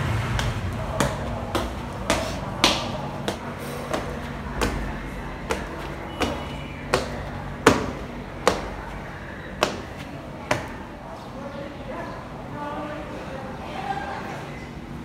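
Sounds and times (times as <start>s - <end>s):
footsteps on tiled stairs: 0.0s - 11.0s.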